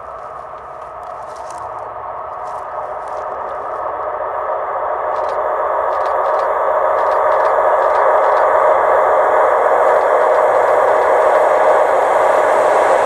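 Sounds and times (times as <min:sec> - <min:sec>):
train wheels rolling on rails: 0:00.0 - 0:13.0.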